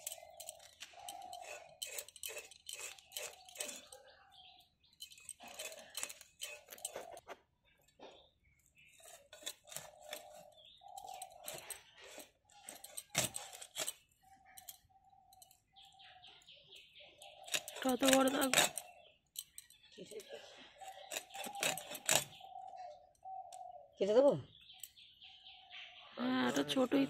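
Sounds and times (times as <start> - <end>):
fish cut on blade clicking and scraping: 0.0 - 4.0, 5.0 - 7.3, 8.9 - 14.8, 17.2 - 19.7, 20.8 - 22.5.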